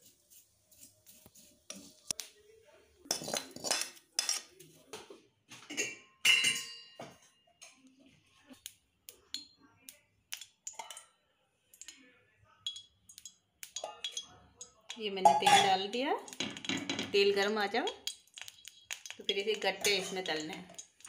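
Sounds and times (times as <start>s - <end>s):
metal utensils clinking on pans: 3.1s - 7.8s, 10.3s - 11.1s, 12.6s - 21.0s.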